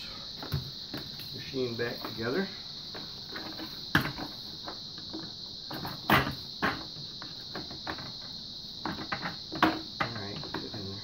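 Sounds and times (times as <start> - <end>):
plastic knocks and clacks: 2.9 - 11.0.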